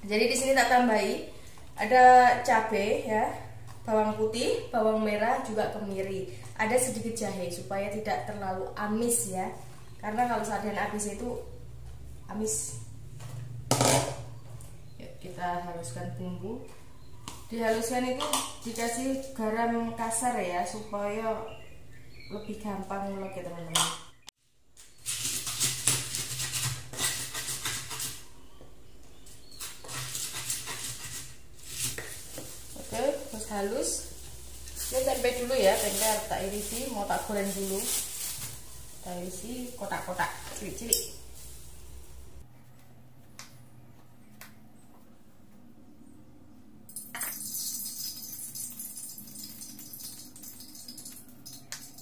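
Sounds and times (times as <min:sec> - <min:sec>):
pestle grinding in mortar: 0:25.0 - 0:28.2, 0:29.4 - 0:32.4
oil sizzling in hot wok: 0:30.3 - 0:42.4, 0:47.0 - 0:52.0.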